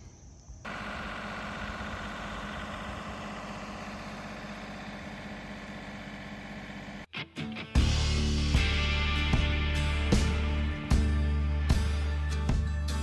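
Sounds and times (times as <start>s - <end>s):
tractor engine running steadily: 0.7s - 7.1s.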